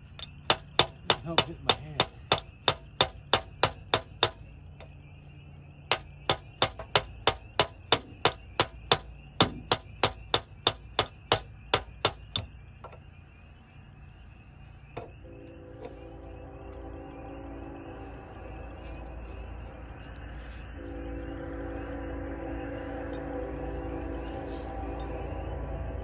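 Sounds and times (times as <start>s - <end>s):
hammer striking metal drift: 0.2s - 4.4s, 5.9s - 12.5s.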